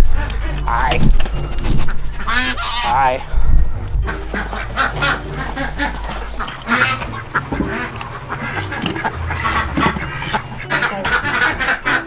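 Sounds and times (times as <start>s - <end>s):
ducks quacking: 2.0s - 3.3s, 4.1s - 12.0s.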